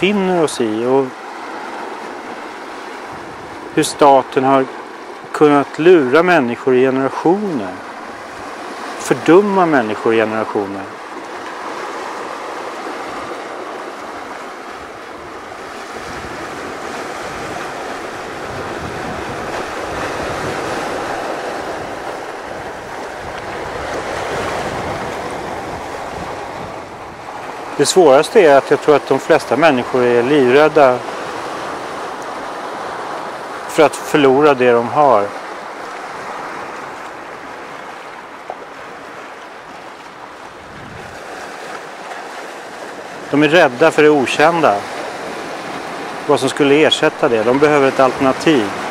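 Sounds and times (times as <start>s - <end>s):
waves breaking on rocks: 0.0s - 48.9s
wind buffeting microphone: 1.6s - 3.8s, 12.8s - 27.8s, 35.6s - 43.2s.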